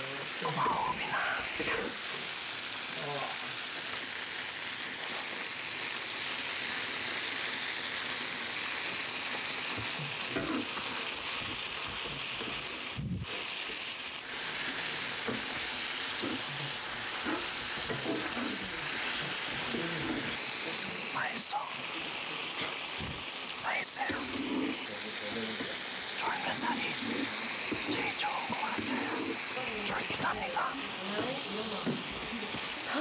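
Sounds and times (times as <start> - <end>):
meat sizzling in a hot pan: 0.0 - 33.0
eating and chewing: 14.6 - 20.4.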